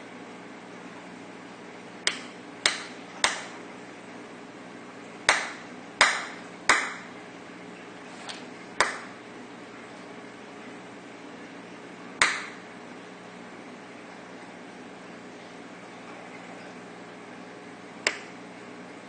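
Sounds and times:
shrimp striking clam shell: 0:02.1 - 0:03.6, 0:05.3 - 0:07.1.

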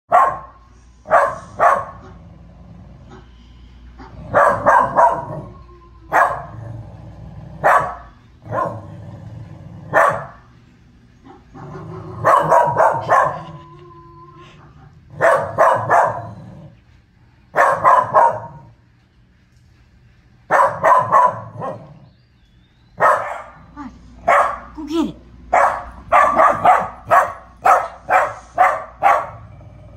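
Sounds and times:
dog barking: 0:00.1 - 0:02.2, 0:04.0 - 0:06.7, 0:07.6 - 0:08.9, 0:09.9 - 0:10.4, 0:11.3 - 0:13.6, 0:15.1 - 0:16.4, 0:17.5 - 0:18.7, 0:20.5 - 0:22.0, 0:23.0 - 0:24.8, 0:25.5 - 0:29.5.

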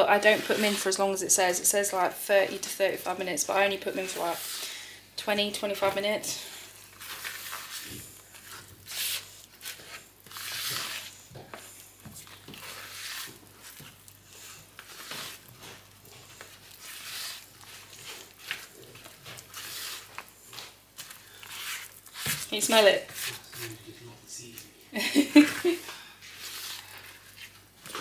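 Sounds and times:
spatula scraping batter in bowl: 0:00.2 - 0:01.2, 0:05.7 - 0:23.7.

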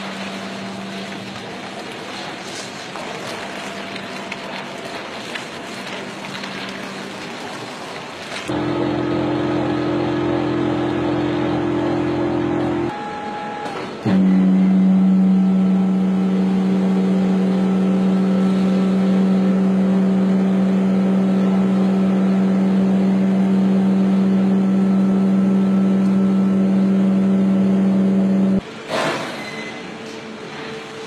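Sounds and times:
loud machine hum: 0:00.0 - 0:31.0.

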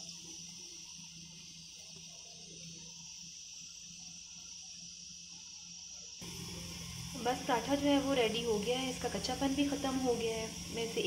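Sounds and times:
flatbread sizzling in oil: 0:00.0 - 0:11.0
low hum: 0:06.2 - 0:11.0.

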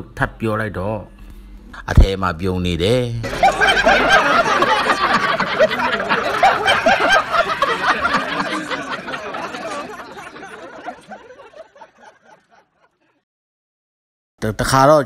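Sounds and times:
group of people laughing: 0:03.2 - 0:13.2.

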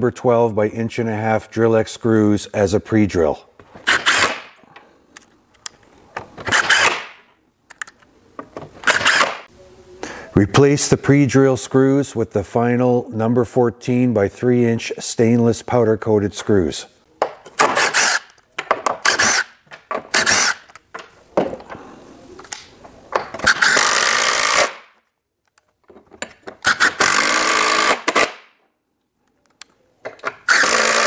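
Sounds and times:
impact driver hammering screws: 0:03.8 - 0:04.6, 0:06.4 - 0:07.2, 0:08.8 - 0:09.4, 0:17.5 - 0:20.7, 0:23.3 - 0:24.9, 0:26.5 - 0:28.5, 0:30.2 - 0:31.0.

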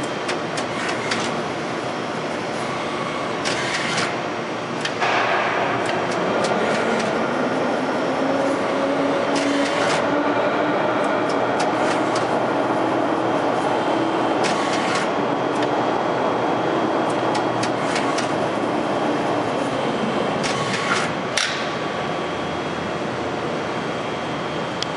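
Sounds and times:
hydraulic pump humming: 0:00.0 - 0:22.7
mechanical noise: 0:00.0 - 0:22.8
machine clicks: 0:05.8 - 0:07.2, 0:17.1 - 0:18.4.

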